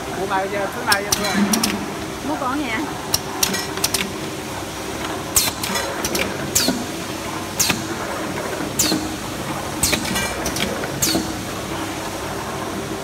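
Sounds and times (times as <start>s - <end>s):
machine humming: 0.6s - 3.4s.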